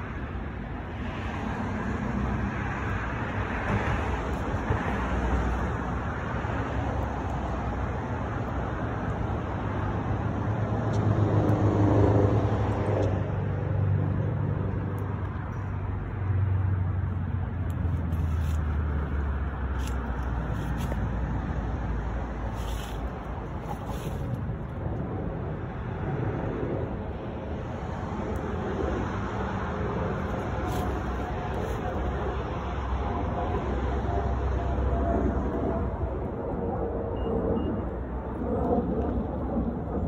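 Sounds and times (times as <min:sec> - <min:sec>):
road traffic rumble: 0:00.0 - 0:40.0
vehicle passing: 0:09.9 - 0:36.0.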